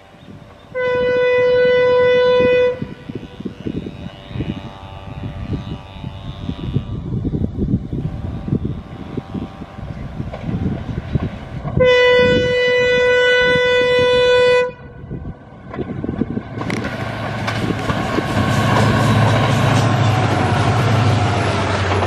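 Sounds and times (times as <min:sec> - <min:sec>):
locomotive air horn: 0:00.0 - 0:10.6, 0:11.7 - 0:15.2
train rumble: 0:00.0 - 0:22.0.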